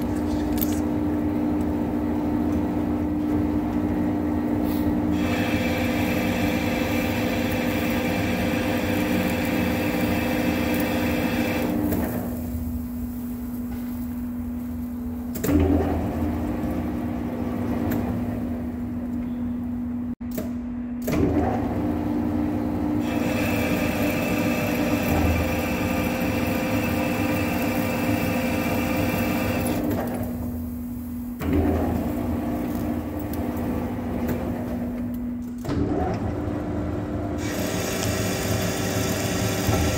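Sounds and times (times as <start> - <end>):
lathe drive whine: 5.1 - 12.3, 23.0 - 29.9, 37.4 - 39.9.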